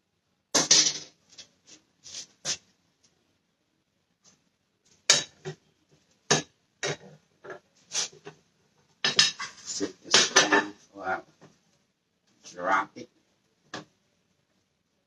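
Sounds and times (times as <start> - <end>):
spatula scraping in frying pan: 9.1 - 10.8.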